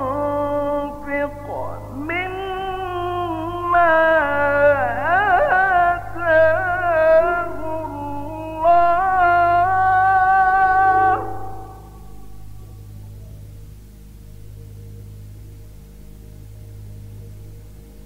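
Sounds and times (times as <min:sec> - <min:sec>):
man chanting melodically: 0:00.0 - 0:12.7
low steady hum: 0:00.0 - 0:18.0.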